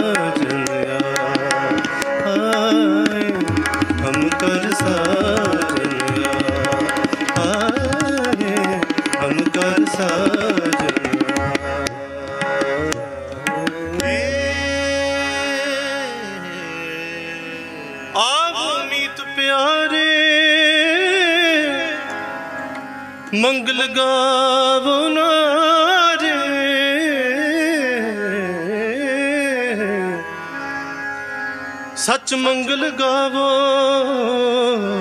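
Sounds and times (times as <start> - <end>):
ornamented singing voice: 0.0 - 22.1
harmonium chords: 0.0 - 35.0
tabla: 0.0 - 35.0.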